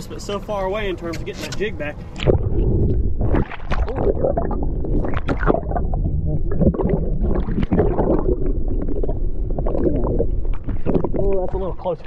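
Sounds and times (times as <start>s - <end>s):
water sloshing and bubbling: 0.8s - 12.0s
muffled underwater rumble: 1.0s - 12.0s
short water splashes: 3.2s - 5.9s.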